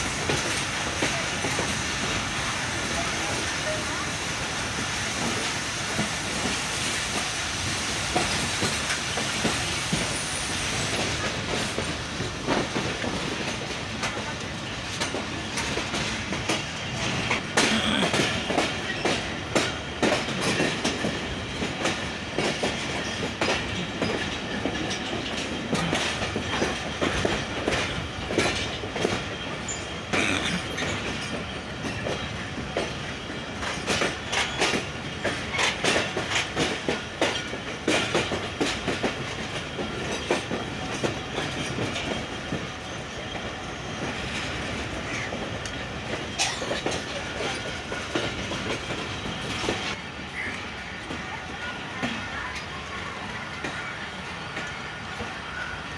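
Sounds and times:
train wheels rumbling on rails: 0.0 - 55.9.

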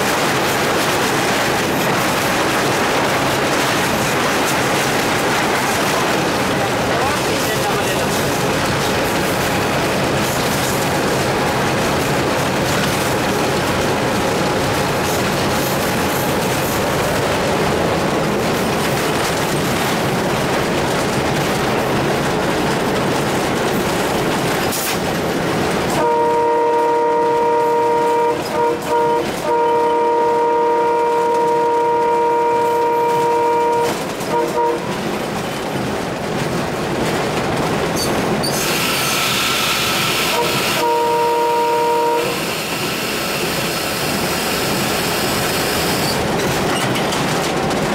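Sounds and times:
locomotive engine and rail noise: 0.0 - 47.9
locomotive air horn: 26.0 - 35.0, 38.9 - 42.8.

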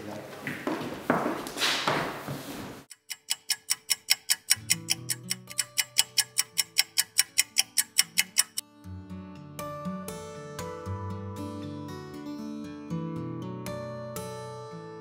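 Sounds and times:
fast clock ticking: 2.9 - 8.6.

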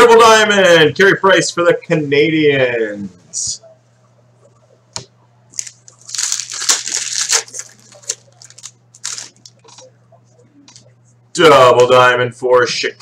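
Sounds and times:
foil wrapper crinkling and tearing: 5.6 - 9.5.

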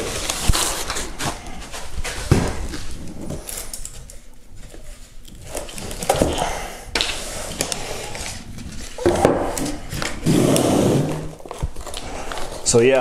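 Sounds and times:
plastic wrap rustling: 0.0 - 10.3, 11.0 - 13.0.

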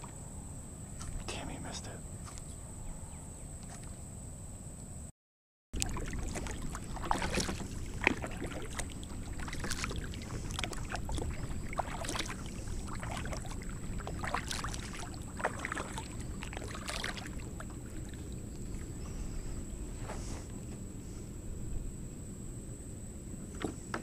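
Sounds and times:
kayak paddle splashing in water: 5.8 - 19.3.

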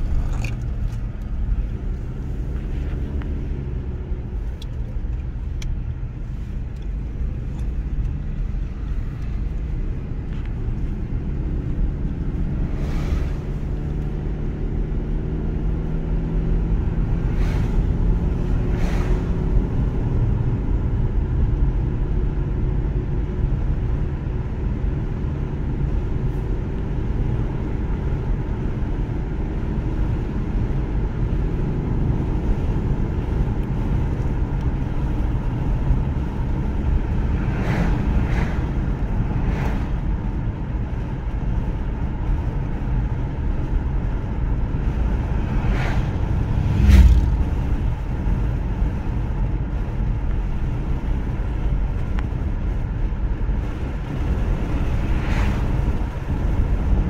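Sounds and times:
car road and engine noise: 0.0 - 57.0
passing cars whooshing: 7.6 - 14.8, 15.9 - 20.8, 32.5 - 51.8, 53.7 - 57.0.

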